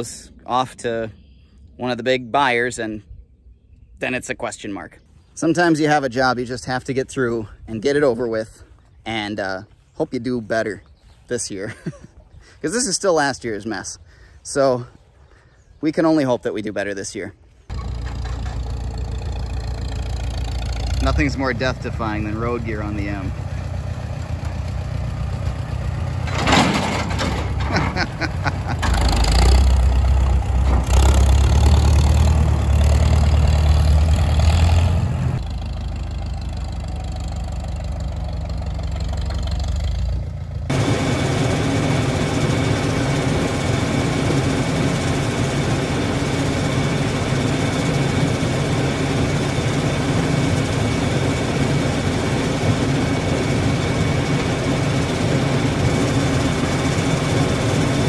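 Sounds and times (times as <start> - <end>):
tractor engine running: 17.5 - 58.0
corn sheller running: 17.7 - 23.5, 40.7 - 58.0
high machine whine: 40.7 - 58.0.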